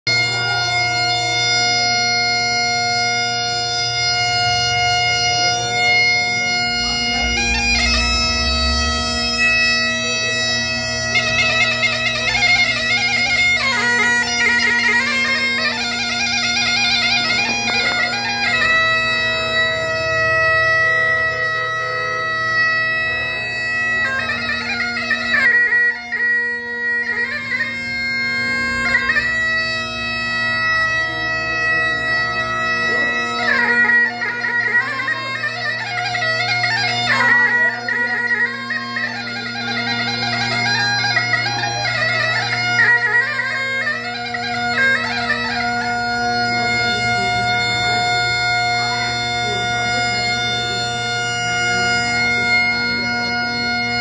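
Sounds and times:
bagpipe melody over drone: 0:00.0 - 0:54.0.

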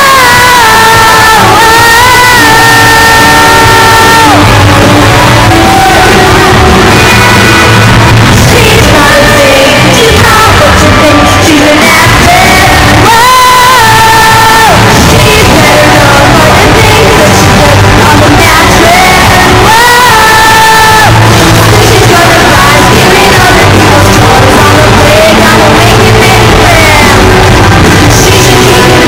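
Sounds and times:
woman singing: 0:08.5 - 0:27.2.

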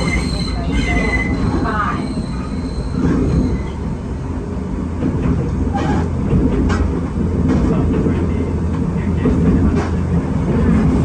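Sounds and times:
train wheels rumbling: 0:00.0 - 0:11.0.

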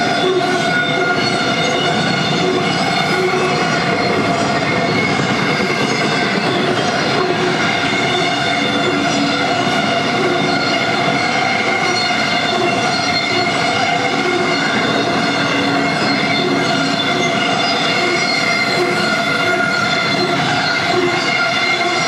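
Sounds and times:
train wheels rumbling on rail: 0:00.0 - 0:22.0
wheels squealing: 0:00.0 - 0:22.0.

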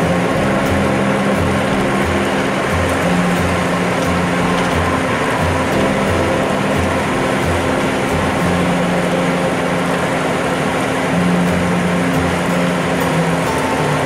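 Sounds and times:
background music with beat: 0:00.0 - 0:10.1
truck road noise on wet highway: 0:00.0 - 0:14.0.

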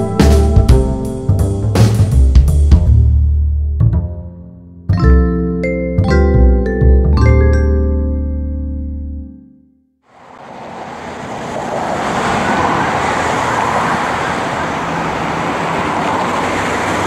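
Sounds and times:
music track: 0:00.0 - 0:09.8
cars passing through intersection: 0:10.1 - 0:17.0.

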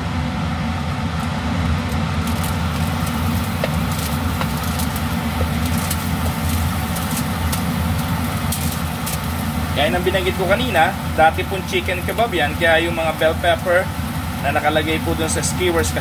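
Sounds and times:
low mechanical hum: 0:00.0 - 0:16.0
food crackling in a hot pan: 0:00.8 - 0:16.0
spatula scraping foil tray: 0:02.3 - 0:07.6.

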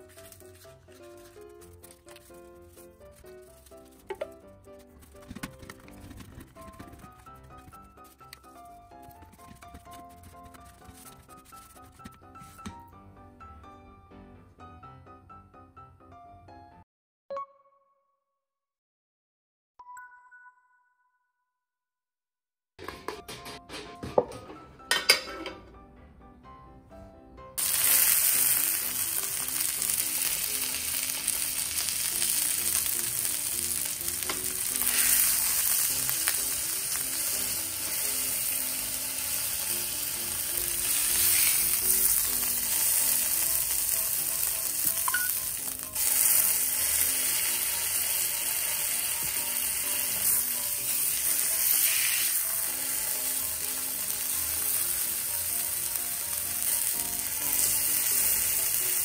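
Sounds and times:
meat sizzling in a frying pan: 0:27.6 - 0:59.0.

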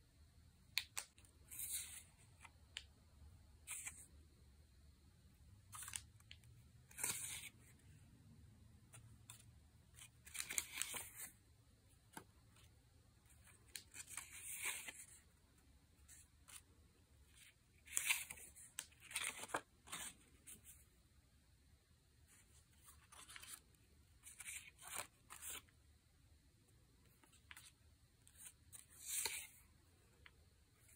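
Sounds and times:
paper cards rustling and flicking: 0:00.7 - 0:02.9, 0:03.6 - 0:04.1, 0:05.6 - 0:08.0, 0:08.9 - 0:12.7, 0:13.3 - 0:15.4, 0:16.0 - 0:20.9, 0:22.4 - 0:25.8, 0:27.1 - 0:30.9.

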